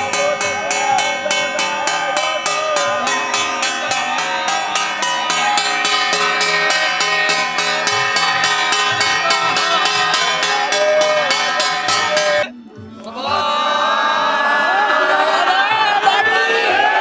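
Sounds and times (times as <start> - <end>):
fast metallic beat: 0.0 - 12.6
wavering melody line: 0.0 - 12.8
sustained held tones: 0.0 - 12.9.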